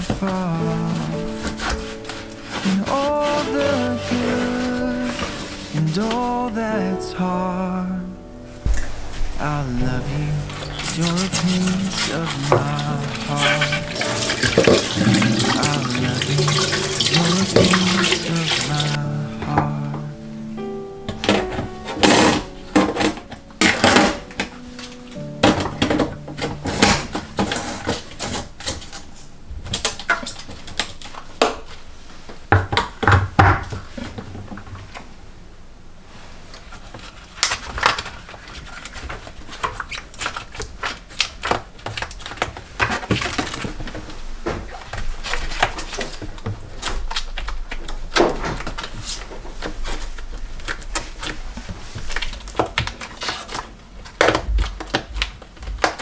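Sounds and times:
cloth scrubbing steel: 0:10.3 - 0:19.0.

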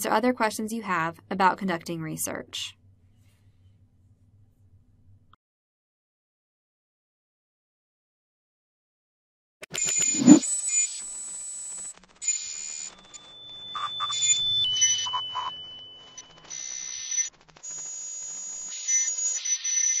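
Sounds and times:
thin high steady tone: 0:10.2 - 0:10.4.

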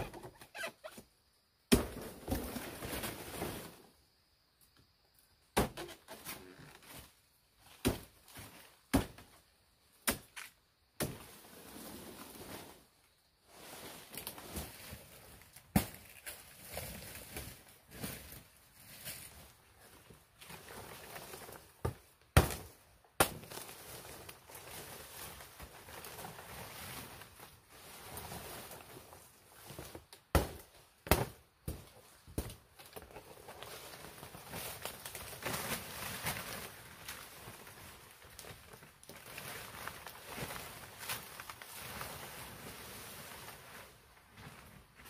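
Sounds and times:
machete chopping stems: 0:10.0 - 0:11.2, 0:22.4 - 0:23.5, 0:30.4 - 0:31.8
palm leaves rustling: 0:11.1 - 0:45.0.

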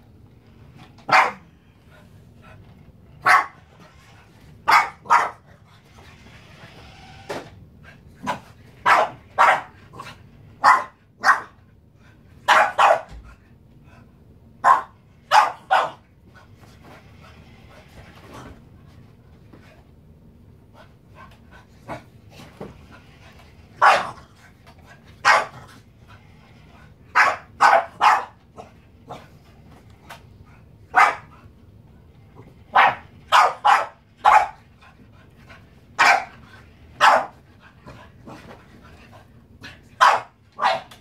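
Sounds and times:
small dog barking: 0:01.1 - 0:01.5, 0:03.2 - 0:03.6, 0:04.6 - 0:05.4, 0:08.3 - 0:09.8, 0:10.6 - 0:11.6, 0:12.5 - 0:13.2, 0:14.6 - 0:16.0, 0:23.8 - 0:24.2, 0:25.2 - 0:25.6, 0:27.1 - 0:28.4, 0:30.9 - 0:31.3, 0:32.7 - 0:34.6, 0:36.0 - 0:36.3, 0:37.0 - 0:37.4, 0:40.0 - 0:41.0.

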